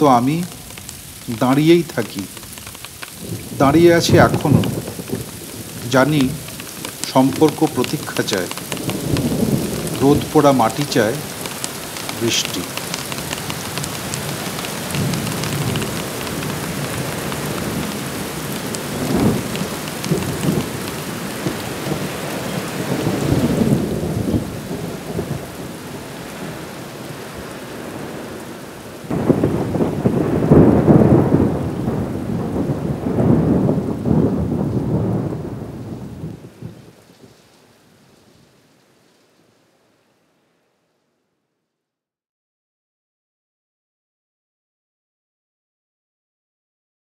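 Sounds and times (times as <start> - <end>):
thunder rumbling: 0.0 - 37.1
rain falling: 0.0 - 41.3.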